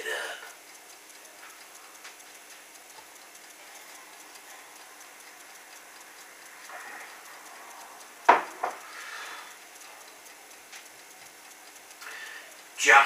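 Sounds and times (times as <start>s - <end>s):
glass mug knocking on table: 8.3s - 8.8s.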